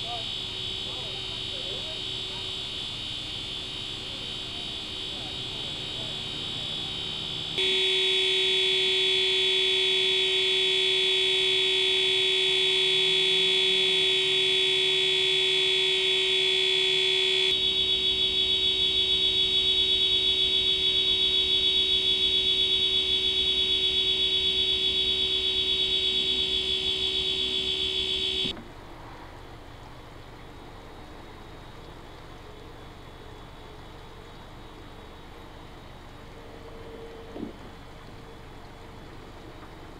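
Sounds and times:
electronic alarm tone: 0:00.0 - 0:28.5.

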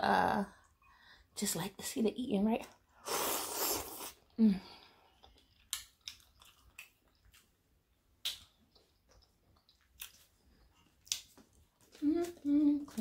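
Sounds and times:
chewing: 0:05.0 - 0:13.0
wet mouth clicks and smacks: 0:05.2 - 0:07.5, 0:08.2 - 0:10.3, 0:11.0 - 0:11.6.

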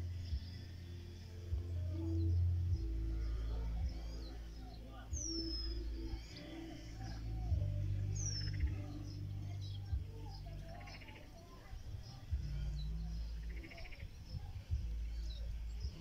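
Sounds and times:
small birds chirping: 0:00.0 - 0:16.0
wind buffeting microphone: 0:13.4 - 0:16.0.

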